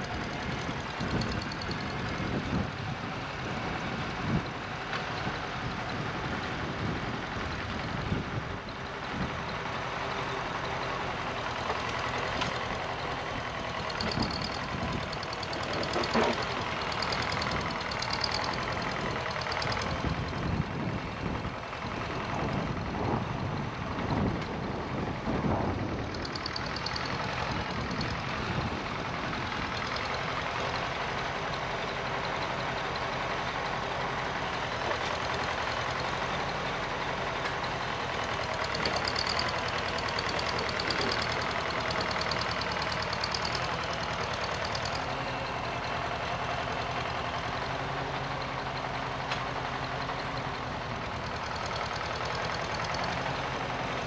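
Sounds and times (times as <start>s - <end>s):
tractor engine running: 0.0s - 54.0s
wind rumbling on microphone: 19.9s - 26.4s.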